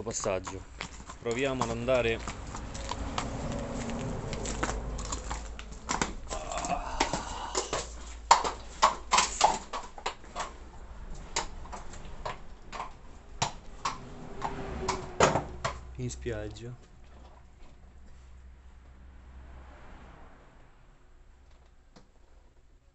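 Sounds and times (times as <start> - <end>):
horse hooves echoing in tunnel: 0.0 - 16.2.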